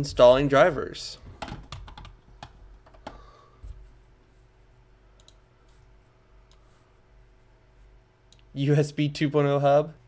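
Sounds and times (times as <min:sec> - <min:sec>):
low steady hum: 0:00.0 - 0:10.0
computer mouse clicks: 0:05.2 - 0:05.4.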